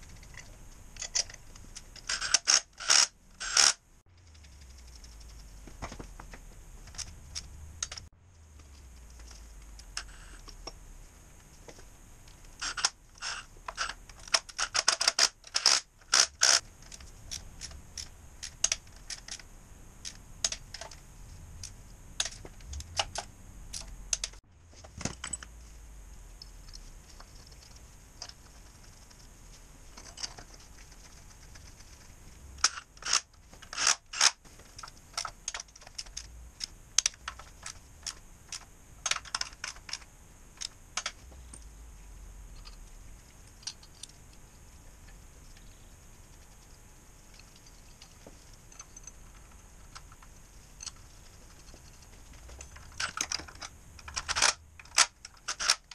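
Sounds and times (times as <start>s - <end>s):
socket ratchet clicking: 2.0s - 3.8s.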